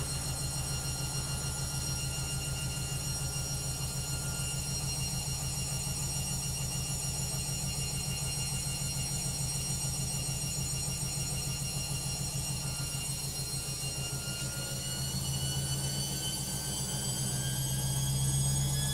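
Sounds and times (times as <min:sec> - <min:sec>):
high-pitched whine: 0:00.0 - 0:18.9
washing machine spinning: 0:00.0 - 0:18.9.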